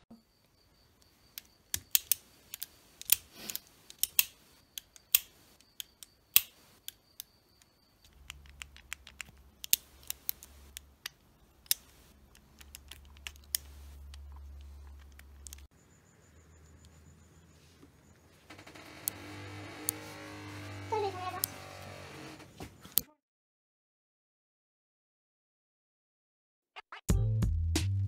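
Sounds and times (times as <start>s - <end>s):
revolver metallic clicks: 1.4s - 7.3s, 8.0s - 15.7s.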